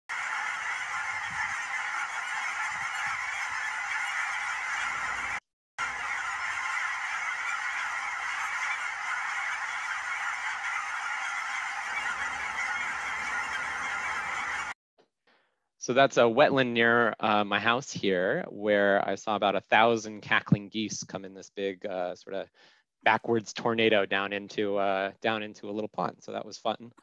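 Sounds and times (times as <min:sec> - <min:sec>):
flock of geese honking: 0:00.1 - 0:14.8.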